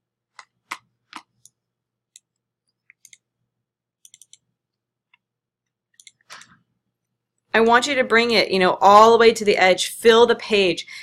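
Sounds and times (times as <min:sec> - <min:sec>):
mouse and keyboard clicks: 0:04.0 - 0:04.5, 0:06.0 - 0:06.5.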